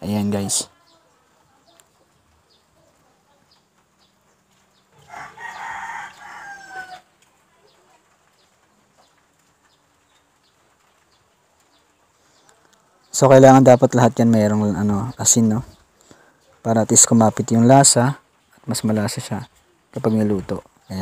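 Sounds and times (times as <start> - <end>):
rooster crowing: 5.0 - 7.2.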